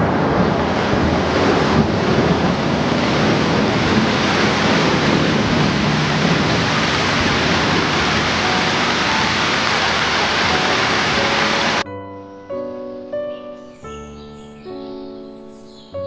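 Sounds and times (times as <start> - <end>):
heavy rain on foliage: 0.0 - 11.8.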